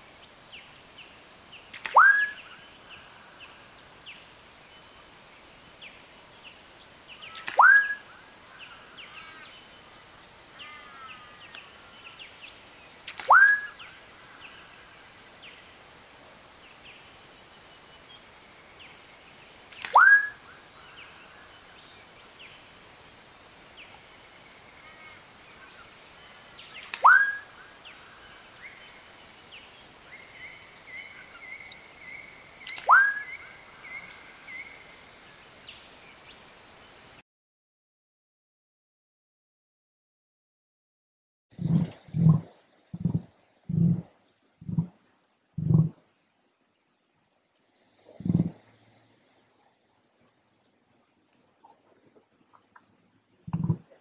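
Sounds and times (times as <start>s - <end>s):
small birds chirping: 0.2s - 15.7s, 23.7s - 37.0s.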